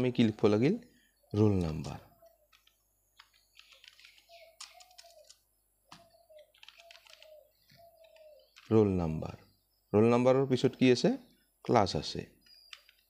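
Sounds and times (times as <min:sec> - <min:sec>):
computer keyboard typing: 0:02.5 - 0:08.7, 0:12.4 - 0:13.0.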